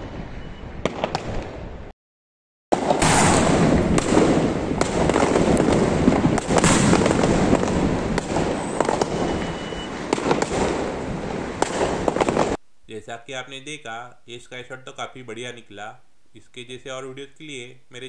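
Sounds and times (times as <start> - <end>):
firework pops and bangs: 0.8 - 1.6, 2.8 - 10.9, 11.5 - 12.6
firework rushing noise: 2.8 - 12.6.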